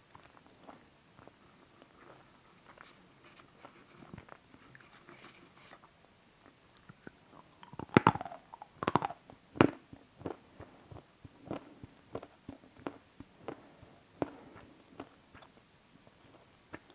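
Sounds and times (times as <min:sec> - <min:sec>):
crunchy bites and chewing: 0:06.8 - 0:10.4.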